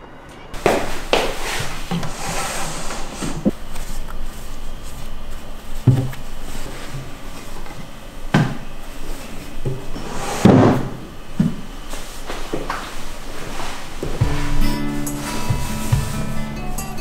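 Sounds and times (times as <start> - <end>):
drawer shutting with thud: 10.0 - 11.0.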